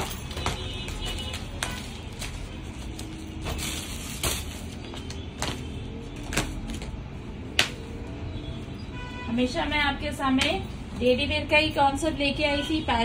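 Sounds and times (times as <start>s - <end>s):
cloth rustling: 0.0s - 7.0s.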